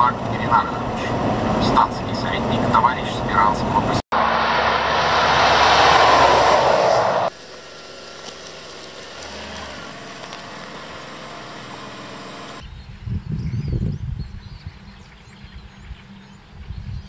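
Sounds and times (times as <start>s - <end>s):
heavy truck passing: 0.0s - 8.2s
vehicle engine hum: 0.0s - 12.6s.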